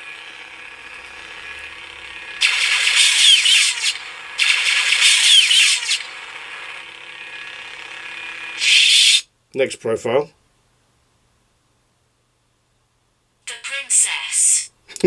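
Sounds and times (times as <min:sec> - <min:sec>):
low steady saber hum: 0:00.0 - 0:08.6.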